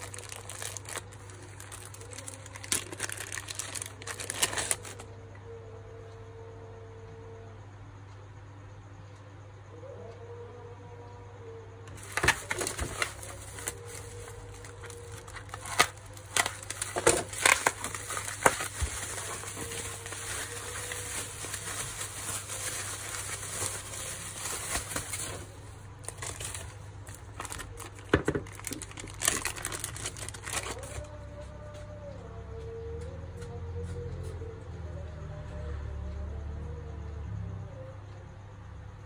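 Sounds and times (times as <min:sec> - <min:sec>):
bubble wrap crinkling: 0:00.0 - 0:05.1, 0:11.9 - 0:31.2.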